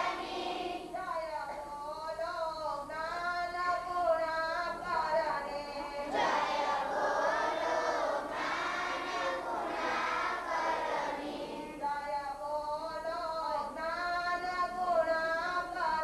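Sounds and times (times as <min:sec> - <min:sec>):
group singing response: 0:00.0 - 0:01.1, 0:05.7 - 0:12.0.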